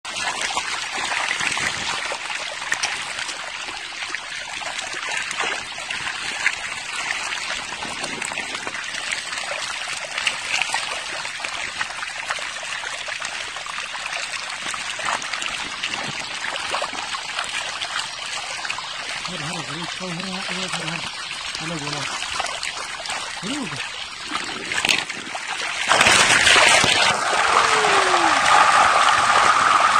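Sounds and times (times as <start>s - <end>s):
stream trickling over stones: 0.1s - 29.9s
small sharp splashes: 20.7s - 29.8s.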